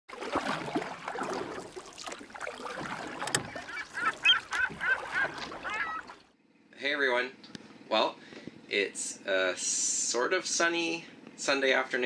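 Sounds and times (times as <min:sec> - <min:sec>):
water lapping around a boat: 0:00.1 - 0:06.4
short bird calls: 0:03.4 - 0:06.2.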